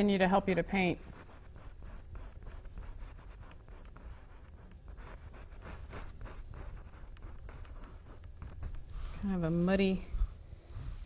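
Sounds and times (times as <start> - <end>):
brush strokes on canvas: 5.2 - 11.0.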